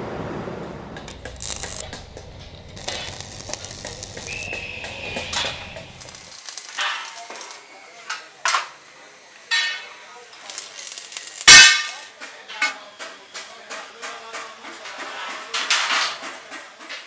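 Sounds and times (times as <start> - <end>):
arc welding crackling: 0.9 - 7.7, 10.2 - 12.2.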